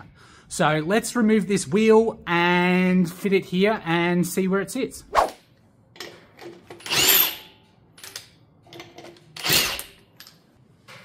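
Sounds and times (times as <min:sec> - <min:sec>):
power tool spinning off nuts: 0:09.4 - 0:09.9.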